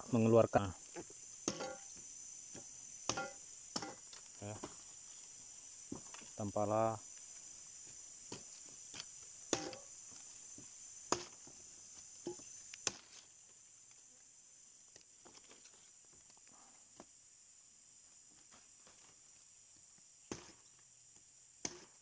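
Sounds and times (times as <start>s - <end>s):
high-pitched insect drone: 0.0s - 21.9s.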